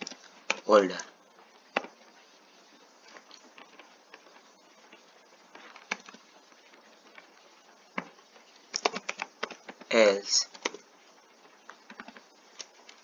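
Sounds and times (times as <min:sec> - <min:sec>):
low steady hiss: 0:00.0 - 0:13.0
keyboard clicks: 0:08.7 - 0:09.9, 0:10.5 - 0:10.8, 0:11.8 - 0:13.0.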